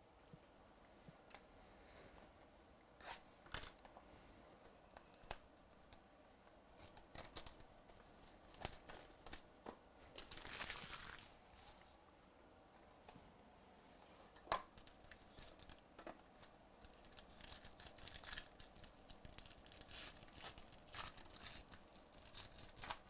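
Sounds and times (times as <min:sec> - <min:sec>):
wrapping tearing: 0:06.8 - 0:09.5, 0:10.1 - 0:11.4, 0:14.8 - 0:15.8, 0:16.4 - 0:23.0.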